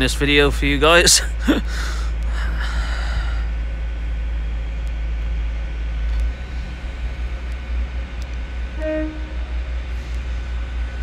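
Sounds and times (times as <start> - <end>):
trains rumbling: 0.0 - 11.0
short horn toot: 8.8 - 9.7.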